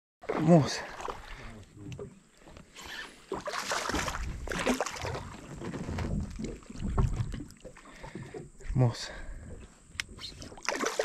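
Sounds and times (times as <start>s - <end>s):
fish thrashing and splashing: 2.8s - 8.6s, 10.2s - 11.0s.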